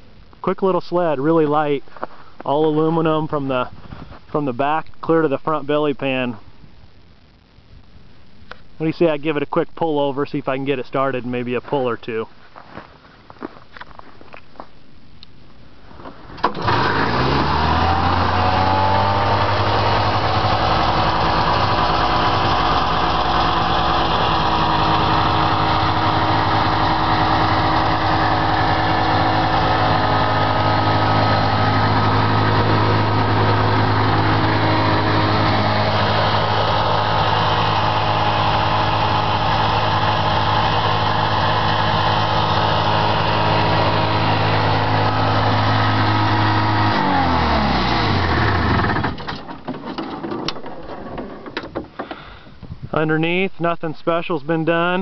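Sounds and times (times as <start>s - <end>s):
snowmobile engine starting and idling: 16.1s - 52.5s.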